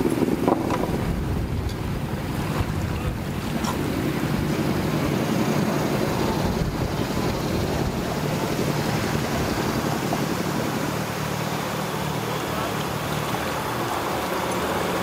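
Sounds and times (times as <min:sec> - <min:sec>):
wind noise on microphone: 0:00.0 - 0:11.8
engine running steadily: 0:00.0 - 0:15.0.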